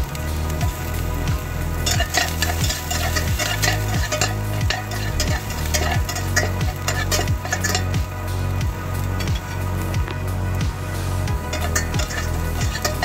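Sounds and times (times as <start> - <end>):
background music with beat: 0.0 - 13.0
garlic sizzling in oil: 0.0 - 13.0
metal spatula scraping pan: 1.8 - 8.1, 11.4 - 13.0.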